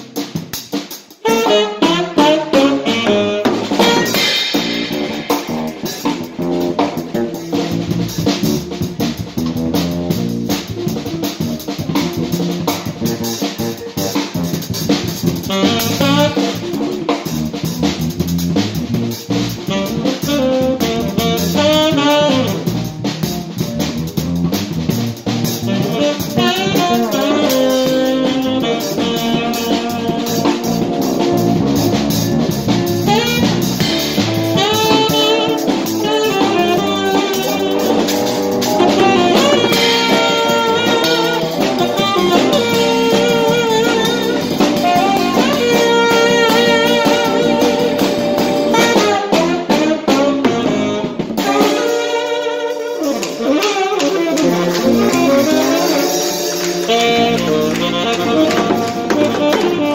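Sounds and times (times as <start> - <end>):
drum kit with cymbal hits: 0.0 - 59.9
electric guitar: 0.0 - 59.9
live band playing: 0.0 - 59.9
wavering lead melody: 25.8 - 49.3, 51.4 - 59.9.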